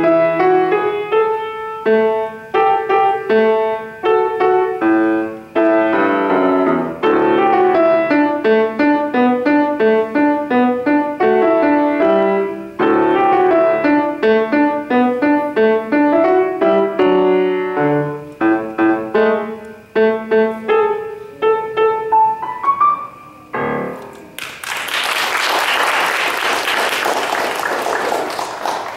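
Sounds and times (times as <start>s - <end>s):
grand piano playing: 0.0s - 24.6s
audience applause: 24.4s - 28.9s.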